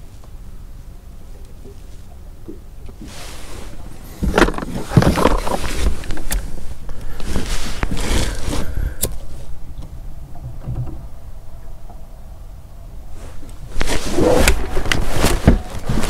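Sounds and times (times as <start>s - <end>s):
scraping and rustling of gear: 3.0s - 9.5s, 13.2s - 16.0s.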